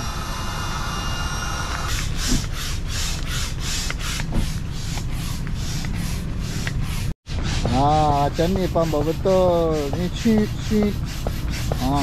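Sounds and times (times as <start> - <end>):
steady hum with high whining: 0.0 - 3.7
hand pump pushing hissing air: 0.0 - 12.0.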